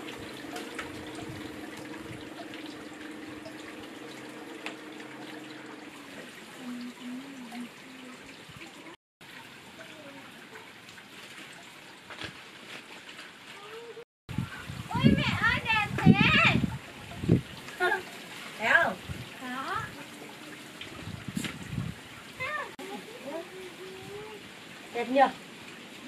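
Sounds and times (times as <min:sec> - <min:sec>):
short wavering tone: 0:00.0 - 0:05.9
low hum: 0:00.0 - 0:08.3
water trickling: 0:00.0 - 0:13.5, 0:14.3 - 0:26.0.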